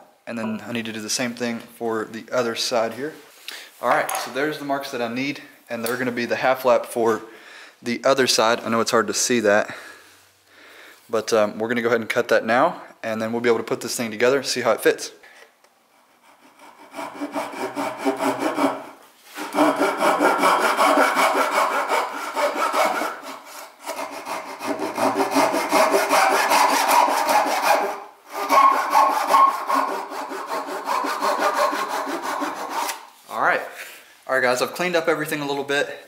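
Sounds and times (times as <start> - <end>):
hand saw cutting wood: 16.0 - 33.1.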